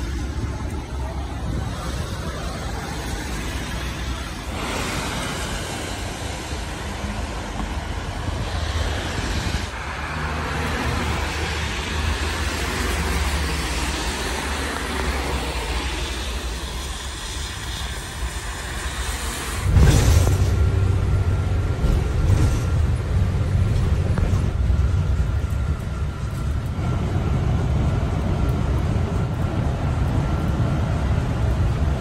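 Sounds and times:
deeper vehicle rumble: 0:00.0 - 0:32.0
road vehicle rumbling: 0:00.0 - 0:32.0.

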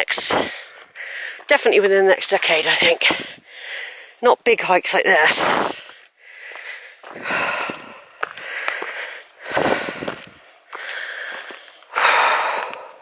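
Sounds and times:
heavy breathing: 0:00.3 - 0:01.5, 0:03.0 - 0:04.2, 0:05.6 - 0:13.0
footsteps on stony path: 0:00.4 - 0:04.0, 0:04.6 - 0:13.0.

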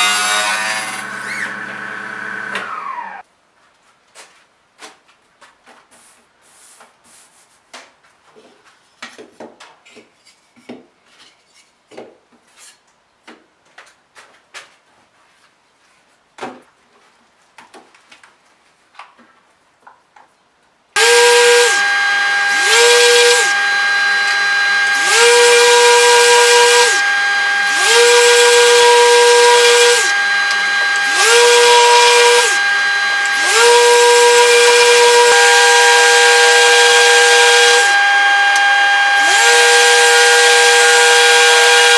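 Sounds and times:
electric sander whining: 0:00.0 - 0:03.2, 0:21.0 - 0:41.9.

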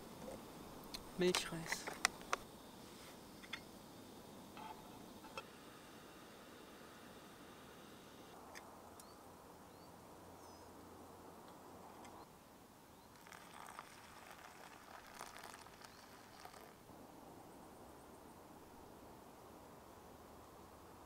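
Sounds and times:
gas stove hissing: 0:02.4 - 0:08.4.

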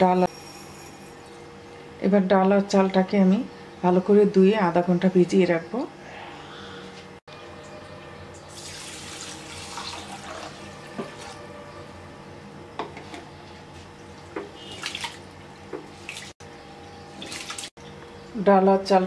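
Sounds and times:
water pouring into a glass bowl: 0:08.5 - 0:10.6.

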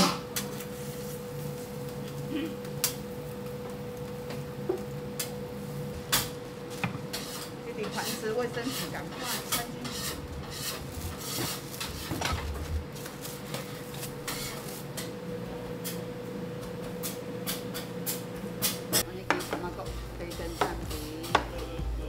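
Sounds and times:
faint hum: 0:00.0 - 0:22.0.

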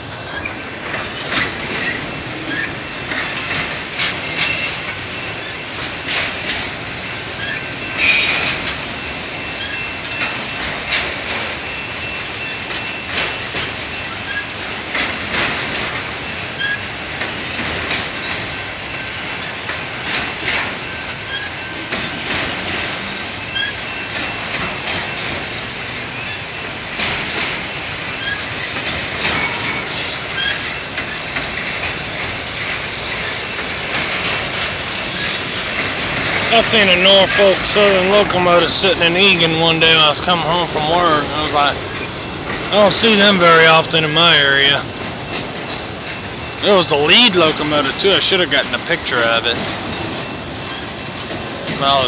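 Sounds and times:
clacks over rail joints: 0:00.0 - 0:52.0
train wheels rumbling on rails: 0:00.0 - 0:52.0
high brake squeal: 0:00.2 - 0:03.1, 0:04.0 - 0:06.5, 0:07.1 - 0:14.7, 0:16.2 - 0:16.9, 0:20.8 - 0:22.2, 0:23.4 - 0:25.2, 0:28.1 - 0:31.3, 0:34.9 - 0:44.8.

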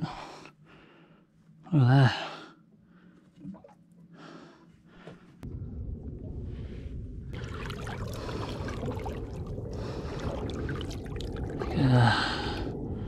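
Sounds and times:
water trickling and splashing: 0:07.3 - 0:12.8.

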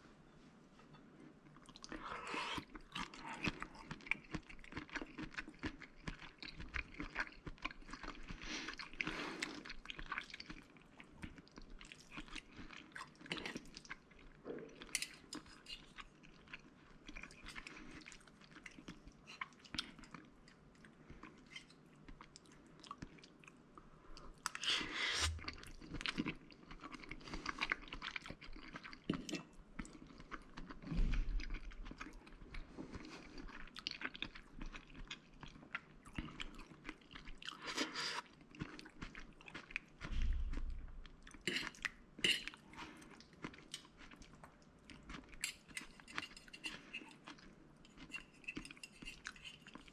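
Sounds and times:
close-up chewing: 0:01.5 - 0:49.9
dull low thumps: 0:40.1 - 0:41.1.

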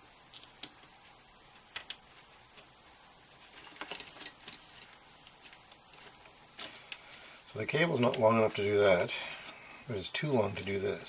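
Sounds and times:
small clicks and ticks: 0:00.2 - 0:02.7, 0:03.4 - 0:09.8
scratchy fiddling with casing: 0:00.2 - 0:10.8.

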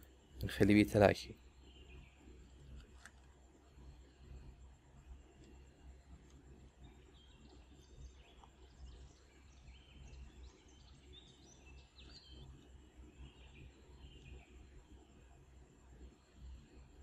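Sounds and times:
low hum: 0:00.0 - 0:17.0
faint high chirps: 0:03.5 - 0:17.0.

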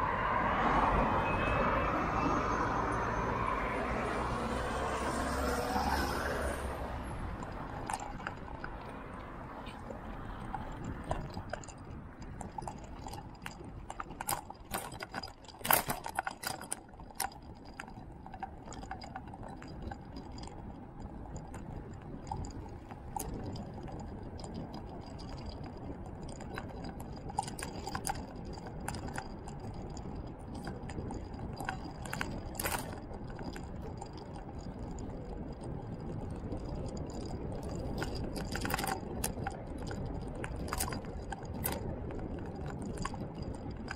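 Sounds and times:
tyres rumbling on asphalt: 0:00.0 - 0:43.9
wind: 0:00.0 - 0:43.9
clicks and rattles: 0:07.2 - 0:43.9.

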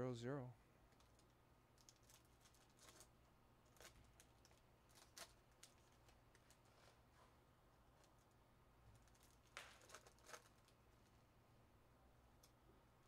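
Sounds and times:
trading cards clicking and rustling: 0:09.0 - 0:10.8.

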